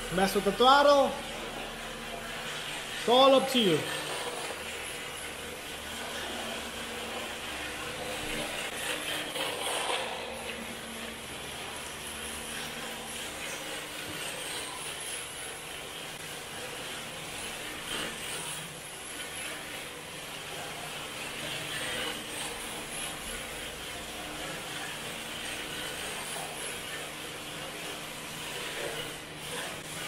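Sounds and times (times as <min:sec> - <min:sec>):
tyres scrubbing on concrete: 0:00.0 - 0:30.0
electric motor of rc car: 0:01.3 - 0:30.0.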